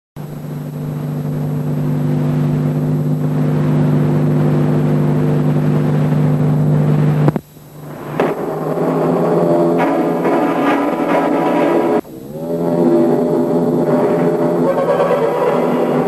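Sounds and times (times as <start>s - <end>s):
low electrical buzz with hiss: 0.2s - 16.0s
click: 7.3s - 7.5s.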